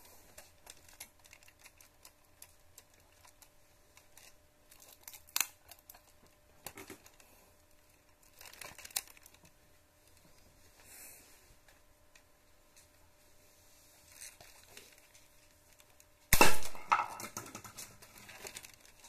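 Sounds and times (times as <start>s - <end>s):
plastic parts clicking and rattling: 0.2s - 10.2s, 16.8s - 19.0s.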